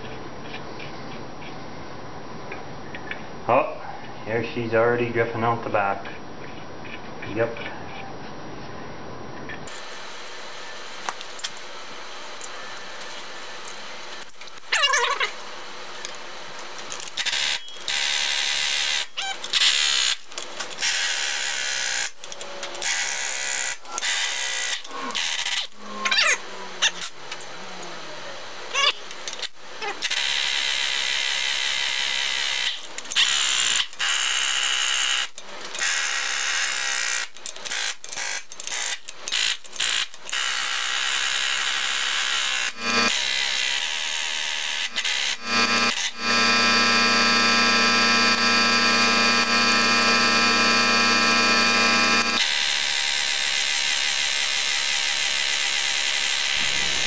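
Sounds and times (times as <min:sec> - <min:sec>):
power driver running bolts: 0:09.7 - 0:27.5, 0:37.2 - 0:57.0.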